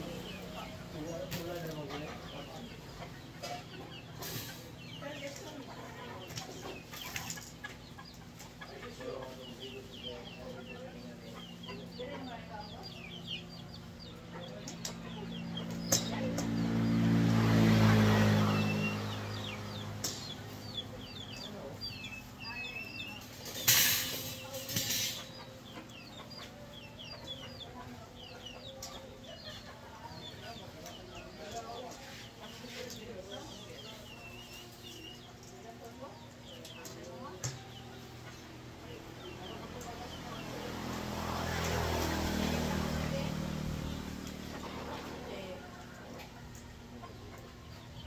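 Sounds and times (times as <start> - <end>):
birds chirping: 0.0 - 48.0
wire mesh fence panel scraping: 23.3 - 25.3.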